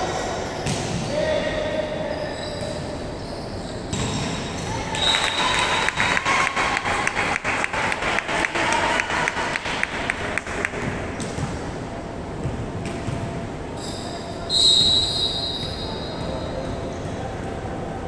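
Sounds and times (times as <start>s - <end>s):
referee's whistle blast: 14.5s - 16.1s.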